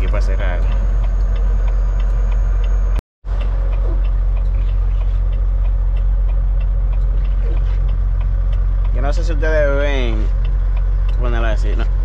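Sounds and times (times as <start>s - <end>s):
diesel truck engine drone: 0.0s - 12.0s
faint light ticks: 10.2s - 11.9s.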